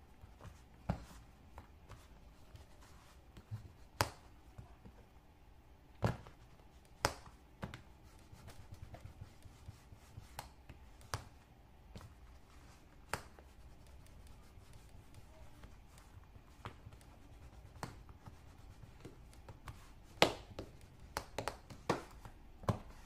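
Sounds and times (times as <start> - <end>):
soft handling noise: 0.0 - 5.3.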